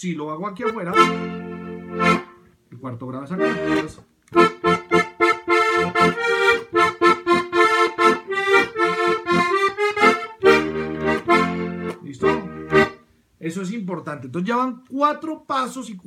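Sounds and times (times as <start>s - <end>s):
button accordion playing: 0.6s - 2.4s, 3.4s - 13.1s.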